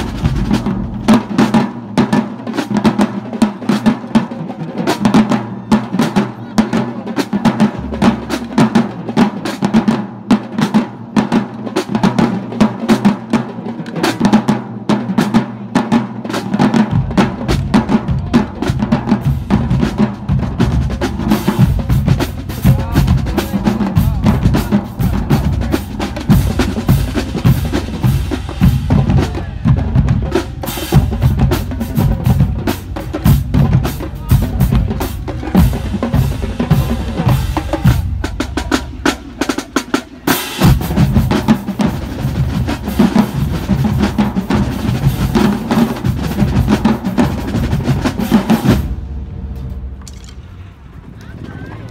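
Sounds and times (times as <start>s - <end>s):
bass drums: 0.0s - 2.2s, 16.5s - 50.0s.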